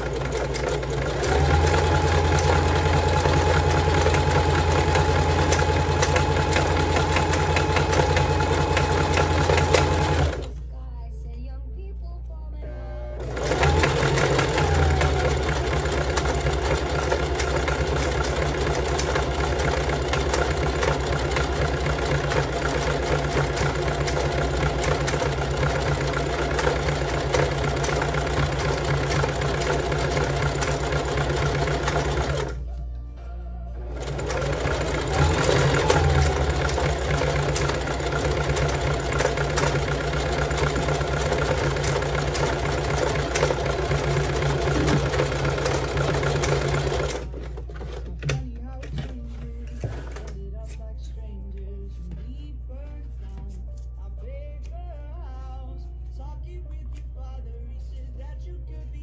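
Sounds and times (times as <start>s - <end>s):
sewing machine running fast: 0.0s - 10.5s, 13.2s - 32.6s, 33.9s - 48.1s.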